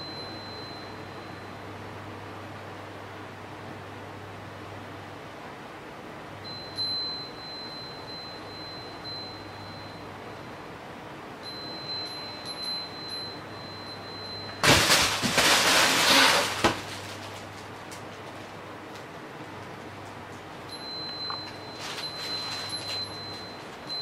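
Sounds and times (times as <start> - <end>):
faint high ringing tone: 0.0 - 2.4, 6.4 - 16.6, 20.6 - 24.0
fabric tunnel rustling: 14.6 - 17.9.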